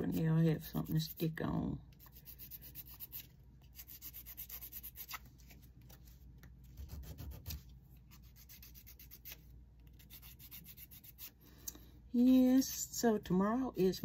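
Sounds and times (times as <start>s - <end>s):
nail buffer rubbing fingernail: 6.8s - 11.4s.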